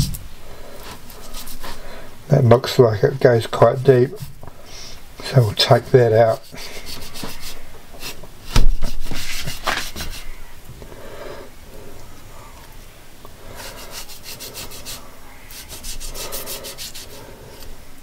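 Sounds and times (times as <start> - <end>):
knife cutting and scraping meat: 1.2 - 1.8, 6.3 - 8.2, 13.6 - 17.3
quick knife sawing strokes: 6.3 - 8.2, 13.6 - 17.3.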